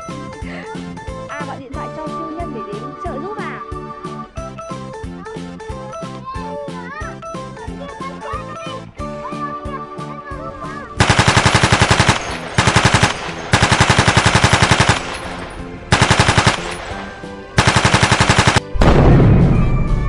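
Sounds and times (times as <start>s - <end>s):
machine-gun fire: 11.0s - 19.4s
deep explosion boom: 18.7s - 20.0s.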